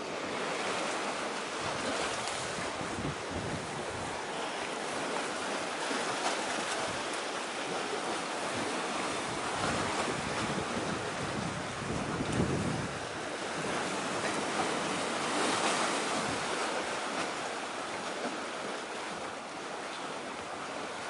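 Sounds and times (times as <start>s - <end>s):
sea waves: 0.0s - 21.0s
wind: 0.0s - 21.0s
wind on microphone: 1.6s - 4.3s, 8.4s - 16.6s.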